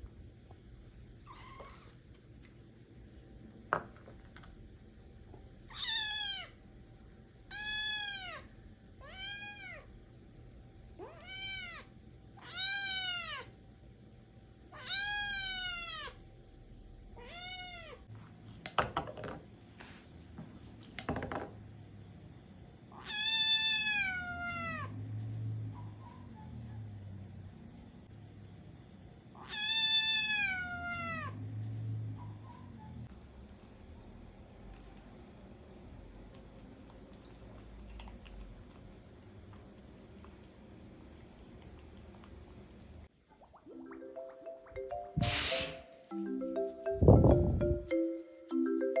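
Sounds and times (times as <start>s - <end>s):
kitten meowing: 17.2s - 18.0s, 29.4s - 31.3s.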